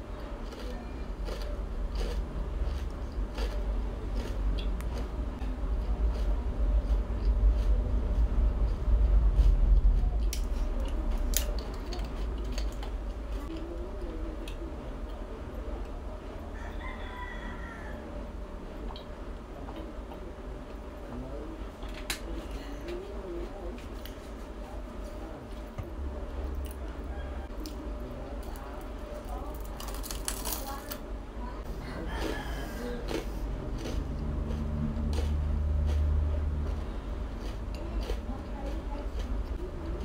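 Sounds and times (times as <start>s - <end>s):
chewing crispy food: 0.1s - 16.0s, 26.4s - 31.0s, 31.6s - 40.0s.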